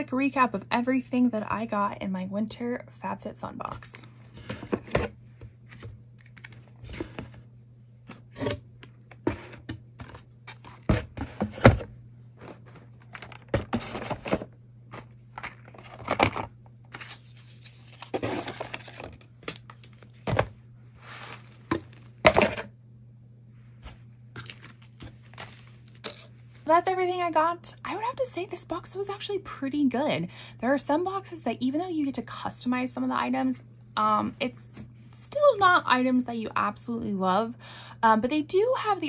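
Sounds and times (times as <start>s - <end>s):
cardboard knocking and scraping: 8.4s - 12.9s, 13.5s - 16.5s
packaging rustling: 12.4s - 22.0s, 24.4s - 26.6s.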